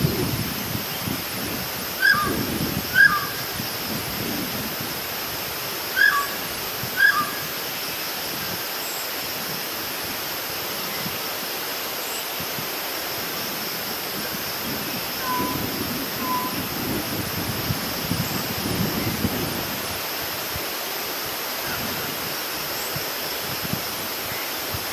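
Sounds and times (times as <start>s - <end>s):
steady hiss: 0.0s - 24.9s
myna whistled calls: 2.0s - 3.4s, 5.9s - 6.4s, 7.0s - 7.5s, 15.2s - 16.6s.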